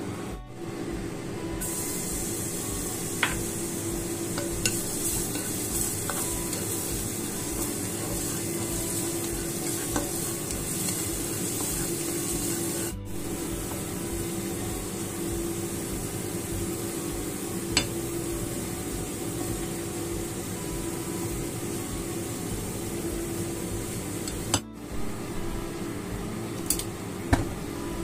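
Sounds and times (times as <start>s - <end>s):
garlic sizzling in oil: 1.6s - 25.8s
spatula tapping pan: 3.2s - 13.0s, 17.7s - 18.0s
spatula scraping pan: 4.4s - 13.0s.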